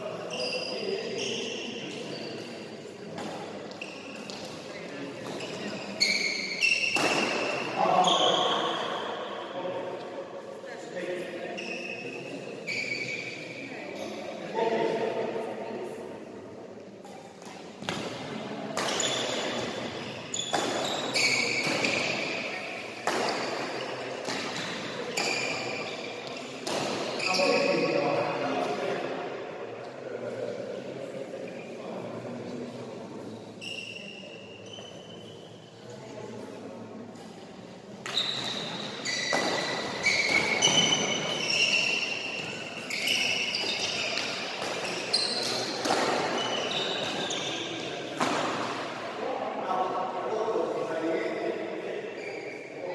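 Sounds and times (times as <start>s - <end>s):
shoes squeaking on court: 0.3s - 2.6s, 3.2s - 9.1s, 11.6s - 14.0s, 18.8s - 28.0s, 33.3s - 35.7s, 38.0s - 48.8s, 52.2s - 52.8s
rackets hitting shuttlecock: 6.7s - 7.7s, 17.2s - 19.8s, 20.4s - 27.2s, 38.0s - 42.5s, 43.1s - 47.5s, 48.2s - 48.8s
racket striking shuttlecock: 23.0s - 23.6s, 43.7s - 46.4s.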